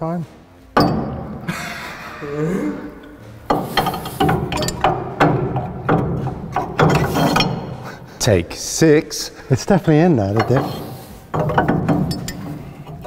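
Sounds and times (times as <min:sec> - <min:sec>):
metal clunks and scraping: 0:00.6 - 0:01.5, 0:03.0 - 0:08.3, 0:09.9 - 0:13.0.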